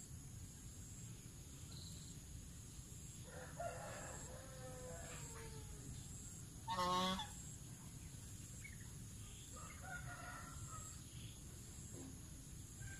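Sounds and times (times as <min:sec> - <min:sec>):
goose honking: 0:06.7 - 0:07.4.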